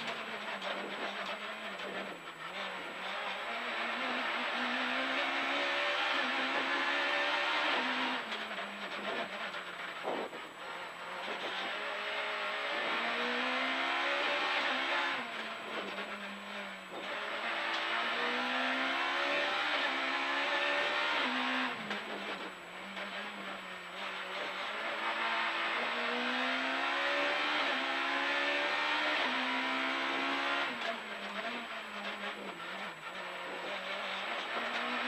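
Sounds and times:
tyre and road noise: 0.0s - 25.9s
rally car engine revving: 0.0s - 35.0s.

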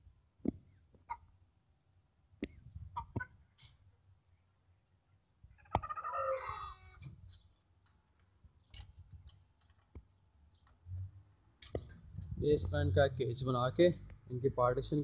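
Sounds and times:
chick calling: 2.7s - 3.4s, 5.5s - 7.1s.

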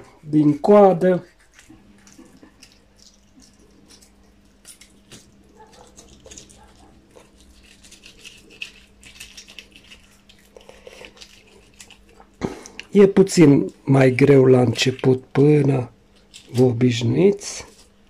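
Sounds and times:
knife scraping fish scales: 1.2s - 2.3s, 3.8s - 12.1s.

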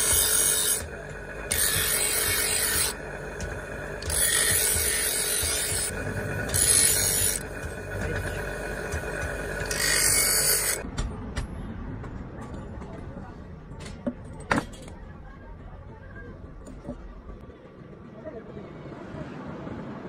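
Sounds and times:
steel grinding on grinding wheel: 0.0s - 10.8s
grinding wheel running hum: 0.0s - 10.9s.

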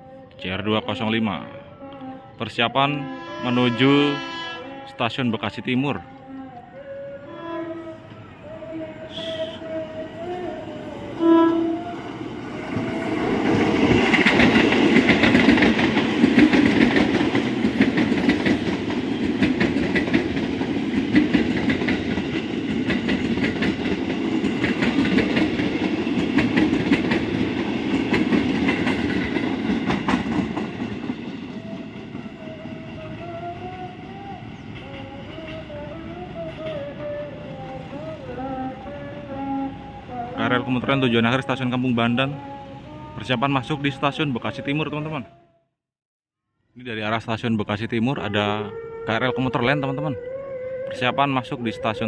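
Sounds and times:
train horn blast: 1.4s - 5.2s, 5.9s - 13.8s
train wheels clattering over rail joints: 13.4s - 31.5s.

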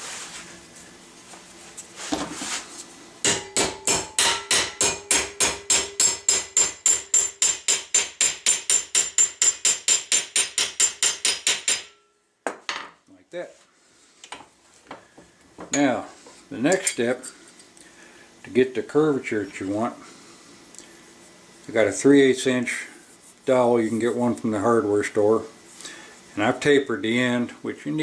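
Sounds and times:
hammer tapping on brass: 3.2s - 12.0s.

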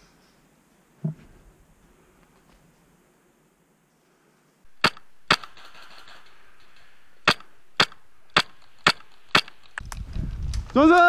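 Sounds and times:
airsoft rifle shots: 4.7s - 9.8s.

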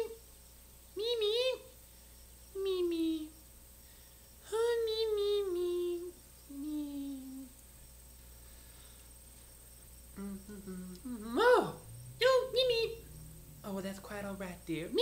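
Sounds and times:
voice humming: 4.6s - 7.5s, 10.2s - 15.0s.

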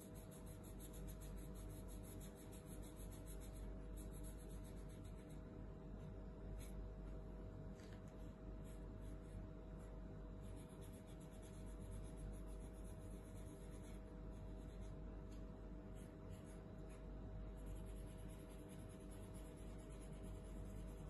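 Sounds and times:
marker scribbling on paper plate: 0.0s - 5.4s, 8.6s - 15.0s, 15.9s - 21.0s
low background hum: 0.0s - 21.0s.

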